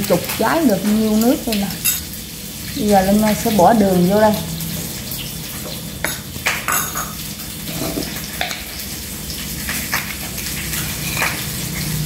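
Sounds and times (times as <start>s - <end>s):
spoon clinking ceramic bowls: 1.8s - 2.1s, 6.0s - 8.6s.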